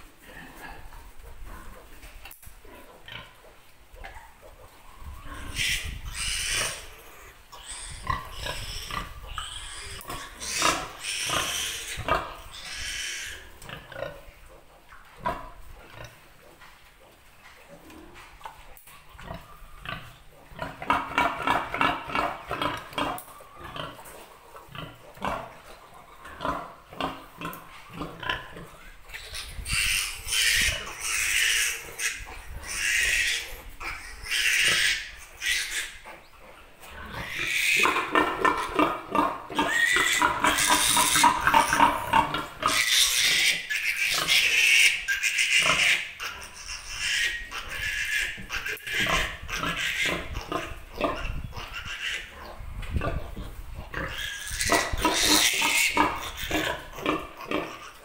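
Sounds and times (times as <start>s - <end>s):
piglet squealing: 5.0s - 13.5s, 29.1s - 36.0s, 37.2s - 38.7s, 39.6s - 42.1s, 42.7s - 52.4s, 54.0s - 58.0s
piglet grunting: 37.0s - 58.0s.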